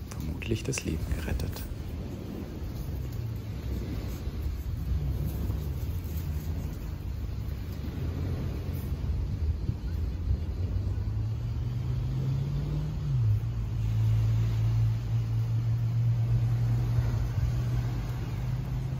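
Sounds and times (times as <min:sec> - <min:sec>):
engine humming: 0:00.0 - 0:18.9
low rumble: 0:00.0 - 0:18.9.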